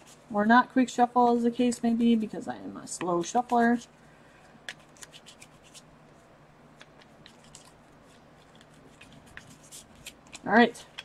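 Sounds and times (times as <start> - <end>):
playing cards being shuffled: 4.7 - 5.9, 6.8 - 11.0.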